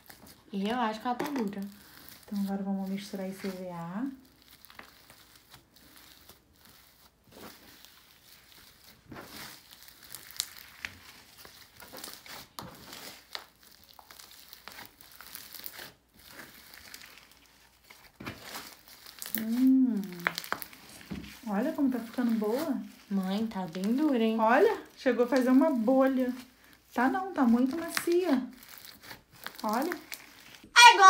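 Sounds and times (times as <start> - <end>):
slime crackling and popping: 0.0 - 31.0
person's voice: 19.4 - 20.3, 30.8 - 31.0.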